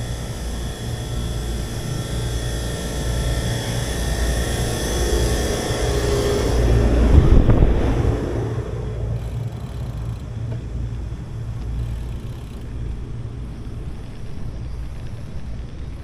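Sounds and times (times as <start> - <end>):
low wind rumble: 0.0 - 16.0
motor vehicle passing: 4.9 - 13.8.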